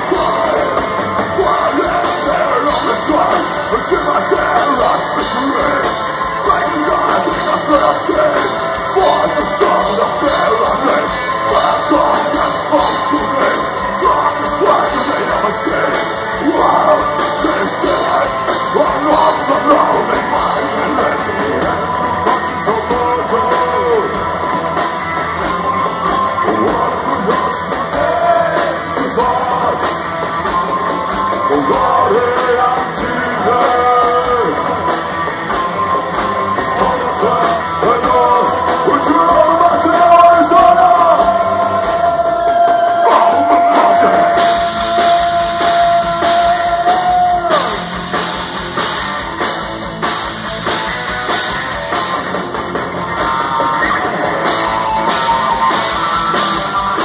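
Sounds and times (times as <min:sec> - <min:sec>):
person singing and shouting: 0:00.0 - 0:24.2, 0:36.6 - 0:48.0
distorted electric guitars: 0:00.0 - 0:57.0
drums: 0:00.0 - 0:57.0
keyboards: 0:00.0 - 0:57.0.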